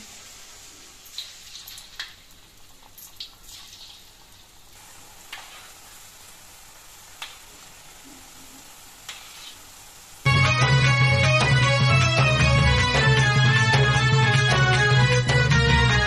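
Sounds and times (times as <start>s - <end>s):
dumplings deep-frying in oil: 0.0s - 10.3s.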